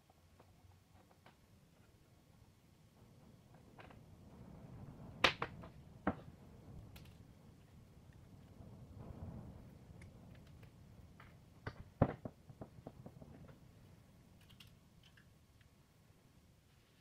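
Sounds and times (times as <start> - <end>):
pliers and wire clicking on wood: 14.4 - 15.8.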